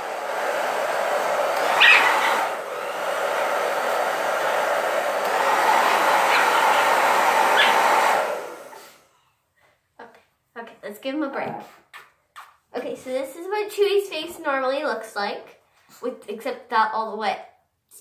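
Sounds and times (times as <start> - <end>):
hair dryer blowing: 0.0 - 9.1
dog whimpering: 1.7 - 2.4, 7.6 - 7.8.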